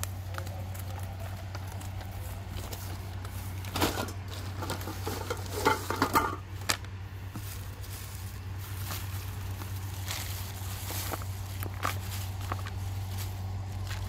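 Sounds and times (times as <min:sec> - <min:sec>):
plastic bag rustling: 0:00.8 - 0:14.0
plastic bowls set down: 0:03.8 - 0:06.4.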